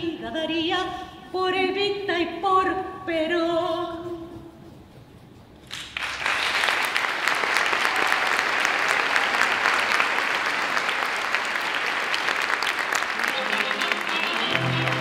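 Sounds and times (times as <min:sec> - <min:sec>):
audience applause: 0:05.7 - 0:15.0.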